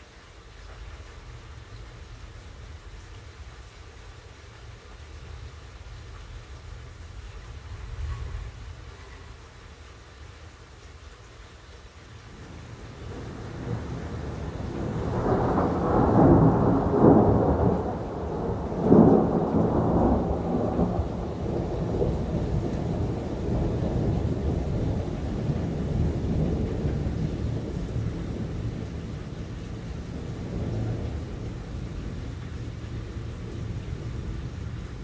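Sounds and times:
rain falling: 0.0s - 35.0s
thunder cracking and rumbling: 12.4s - 35.0s.

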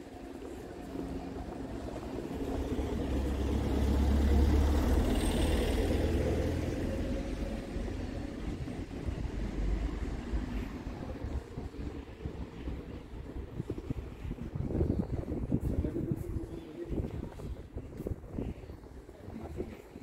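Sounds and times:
heavy vehicle driving past: 1.8s - 11.7s.

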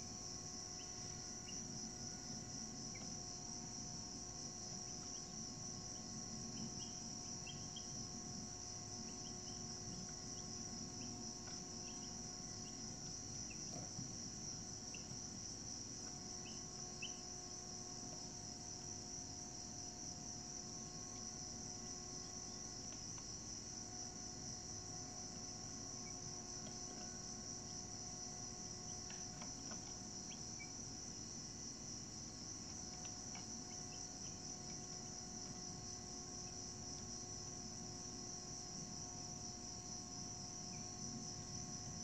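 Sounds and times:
crickets trilling: 0.0s - 42.0s
faint steady hum: 0.0s - 42.0s.

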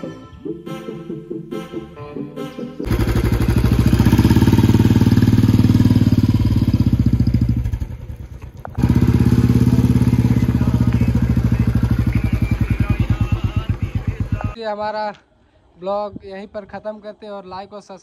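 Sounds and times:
motorcycle engine running: 2.8s - 14.6s.

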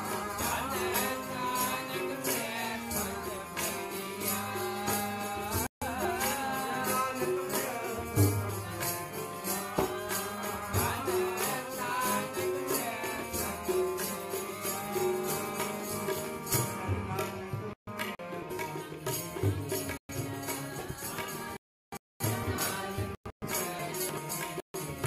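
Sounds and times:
devotional hymn singing: 0.0s - 13.8s
harmonium: 0.0s - 25.0s
tabla drum strokes: 9.8s - 11.2s.

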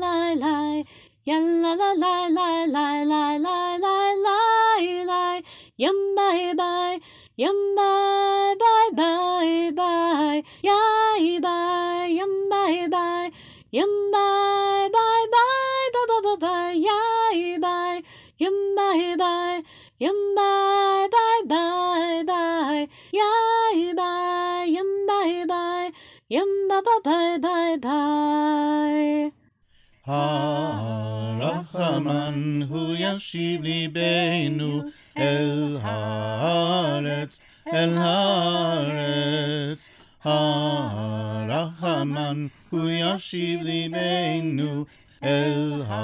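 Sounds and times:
high voice singing: 30.1s - 46.0s
lower voice singing: 30.1s - 46.0s.

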